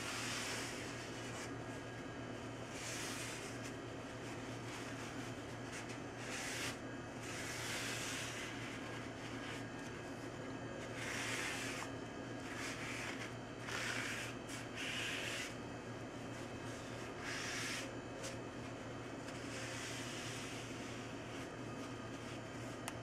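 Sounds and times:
paper towel rubbing on wood: 0:00.0 - 0:01.5, 0:02.7 - 0:09.7, 0:10.8 - 0:15.6, 0:16.6 - 0:18.4, 0:19.4 - 0:21.5
steady low hum: 0:00.0 - 0:23.0.

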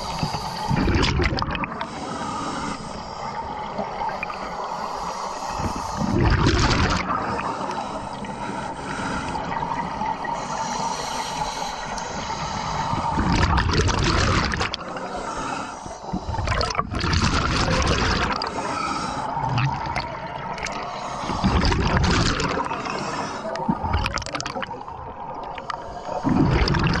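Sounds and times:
bubbling exhaled air: 0:00.0 - 0:02.1, 0:05.4 - 0:07.8, 0:11.6 - 0:27.0
hissing regulator inhales: 0:01.8 - 0:03.4, 0:10.4 - 0:13.2, 0:14.9 - 0:16.5.

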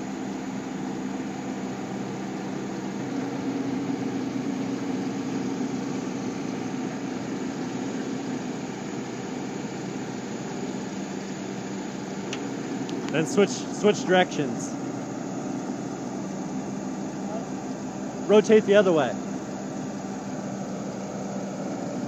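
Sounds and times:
drilling rig engine and hydraulics: 0:00.0 - 0:22.0.

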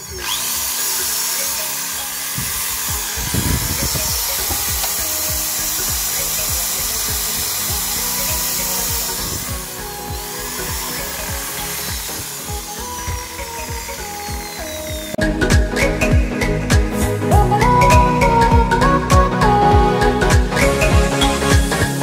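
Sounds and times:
drill motor whining: 0:00.0 - 0:16.1
electronic music with beat: 0:00.0 - 0:22.0.

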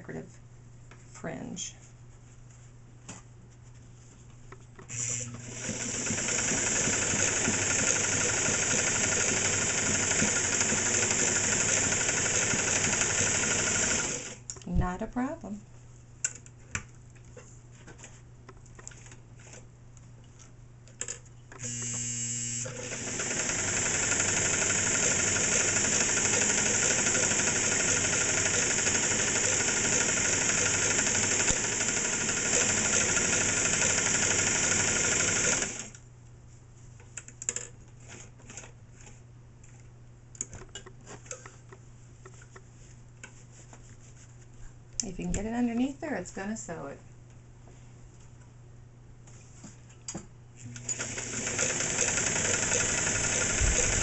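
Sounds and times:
sewing machine stitching fabric: 0:04.9 - 0:14.4, 0:22.6 - 0:36.0, 0:50.7 - 0:54.0.

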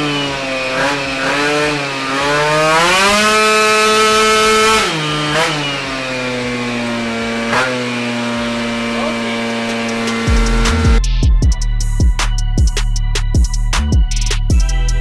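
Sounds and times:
scooter engine revving: 0:00.0 - 0:11.1.

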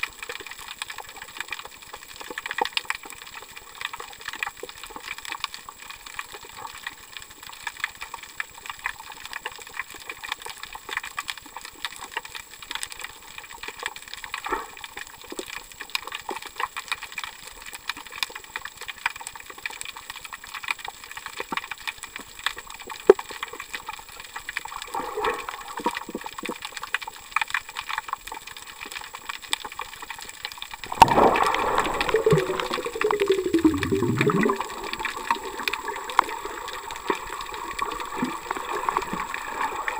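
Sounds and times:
underwater crackle of small clicks: 0:00.0 - 0:39.9
water rushing and gurgling: 0:30.8 - 0:39.9.

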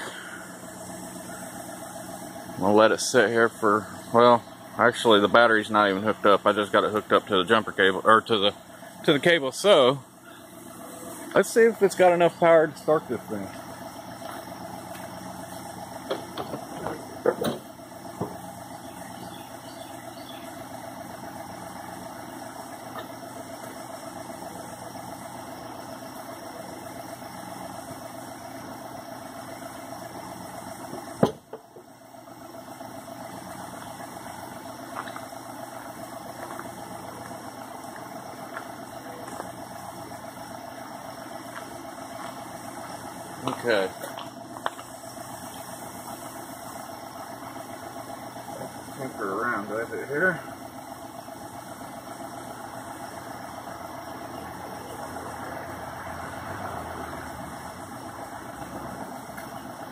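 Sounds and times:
truck engine idling: 0:00.0 - 0:59.9.

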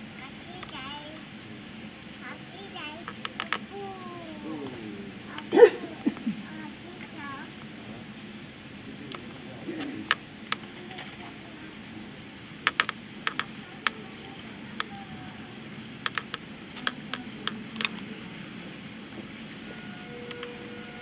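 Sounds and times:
low background murmur: 0:00.0 - 0:21.0
sharp clicks: 0:03.0 - 0:03.6, 0:12.6 - 0:14.0, 0:16.0 - 0:18.0.

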